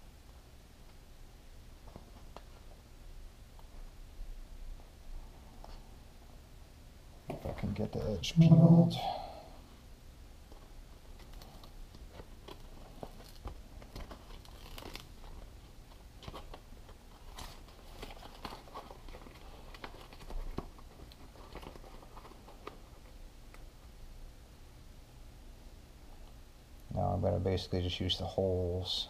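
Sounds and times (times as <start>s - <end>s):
small clicks and rustles: 10.4s - 23.9s
backing paper crinkling: 11.1s - 23.6s.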